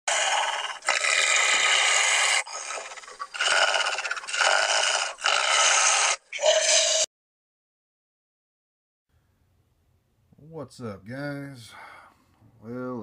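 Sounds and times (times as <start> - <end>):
monster growling and snarling: 0.1 - 7.1.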